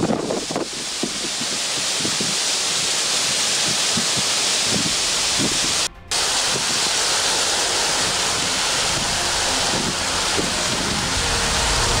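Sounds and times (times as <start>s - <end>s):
heavy rain and hail: 0.0s - 12.0s
music: 5.9s - 12.0s.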